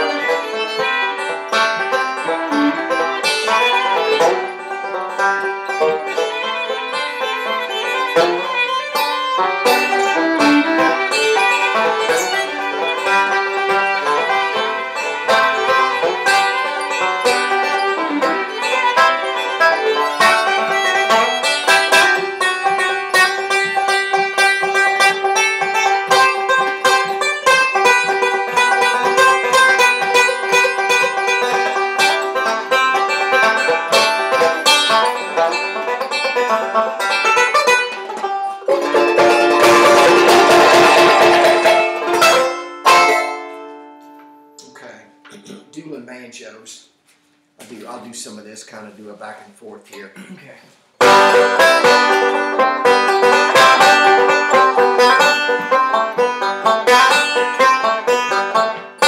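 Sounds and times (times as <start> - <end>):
picked banjo: 0.0 - 59.0.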